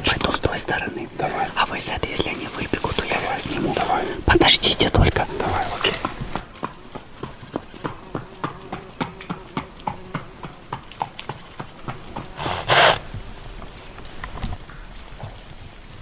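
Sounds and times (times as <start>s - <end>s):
horse snorting: 1.1s - 6.4s, 11.6s - 13.1s.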